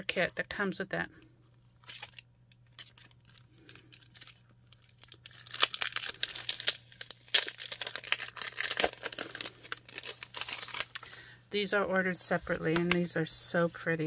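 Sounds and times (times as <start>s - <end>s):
plastic sleeve crinkling: 1.5s - 11.3s.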